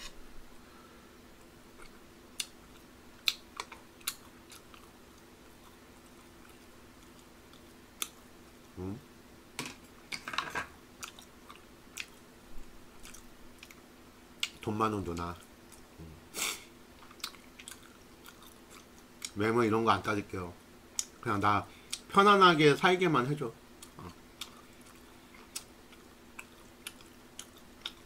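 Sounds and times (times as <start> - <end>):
faint low hum: 0.0 - 28.0
man chewing: 1.4 - 8.2, 11.0 - 12.3, 13.0 - 14.6, 15.4 - 19.4, 23.8 - 28.0
man humming: 8.8 - 9.1, 16.0 - 16.2.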